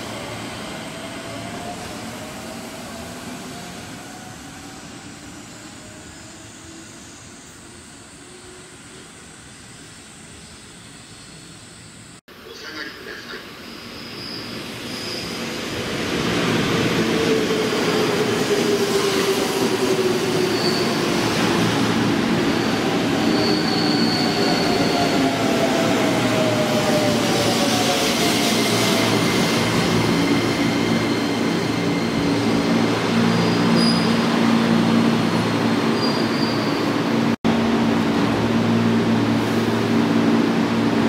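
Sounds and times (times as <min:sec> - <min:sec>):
train brakes whining: 0:22.2 - 0:25.7.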